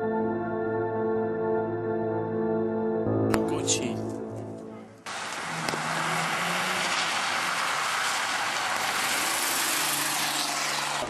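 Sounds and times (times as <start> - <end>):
rally car engine passing: 5.0 - 11.0
tyres hissing on wet road: 5.1 - 11.0.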